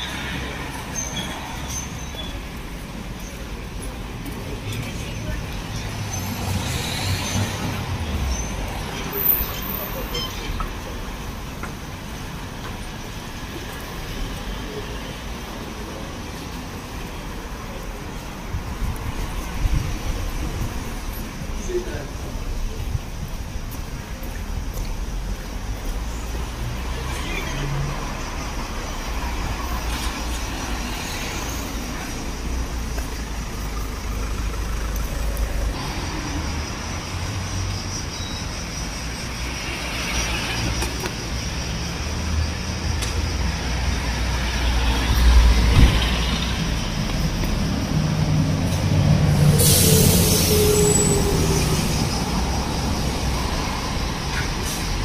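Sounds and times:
cars driving past: 24.2s - 55.0s.

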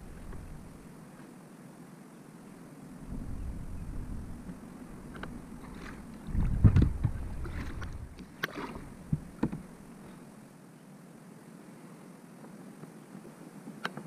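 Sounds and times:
paddle strokes in water: 0.0s - 1.4s, 4.4s - 10.4s.

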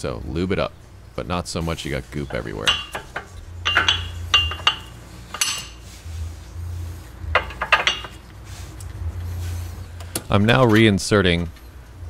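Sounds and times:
steady low hum: 0.0s - 12.0s
brake pads clinking on metal: 2.2s - 5.9s, 7.3s - 8.3s.

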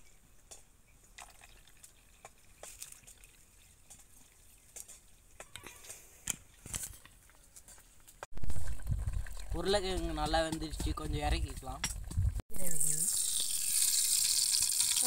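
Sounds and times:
water trickling into bowl: 0.9s - 5.4s, 12.6s - 15.0s
small splashes: 1.2s - 5.2s.

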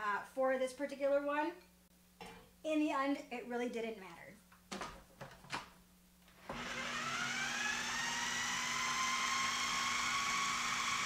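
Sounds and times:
food processor motor whining: 6.4s - 11.0s.

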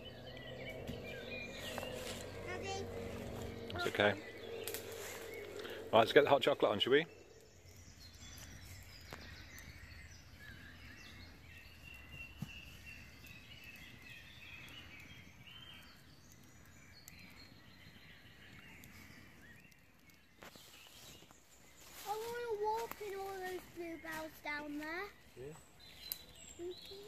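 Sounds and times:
low rumble: 0.0s - 18.5s
distant birdsong: 0.0s - 27.0s
campfire clicking and popping: 4.2s - 24.8s, 25.9s - 27.0s.

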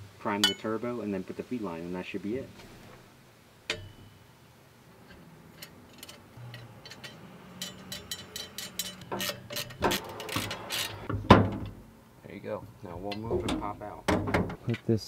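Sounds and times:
metallic clicks and clinks: 5.6s - 11.0s.

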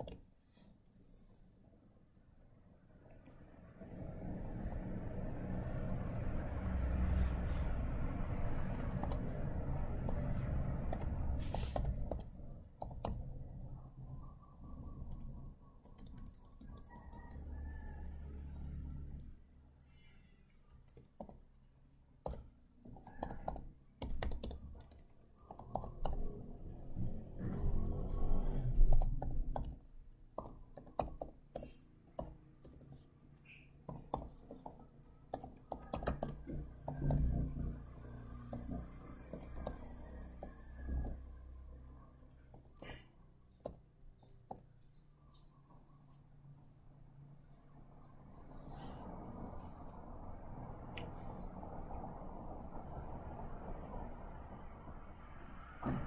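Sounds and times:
typing on a computer keyboard: 0.0s - 0.3s, 8.6s - 13.2s, 15.0s - 17.5s, 20.8s - 21.5s, 22.2s - 26.4s, 28.8s - 29.8s, 30.4s - 33.0s, 33.8s - 37.5s, 38.4s - 41.2s, 42.3s - 43.0s, 43.6s - 44.7s.

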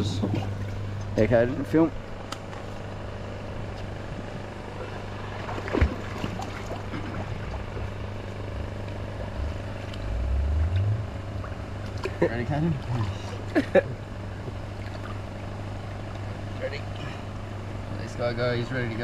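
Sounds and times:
motor humming: 0.0s - 19.0s
low rumble: 5.2s - 12.2s.

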